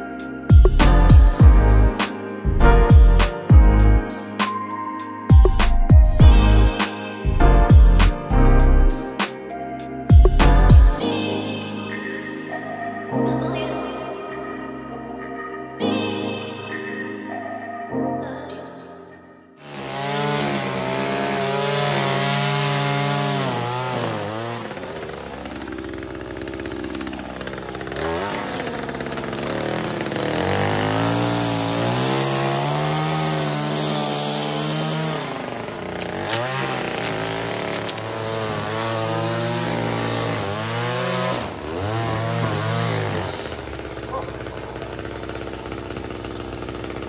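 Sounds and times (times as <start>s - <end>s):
string trimmer engine revving: 19.6s - 47.0s.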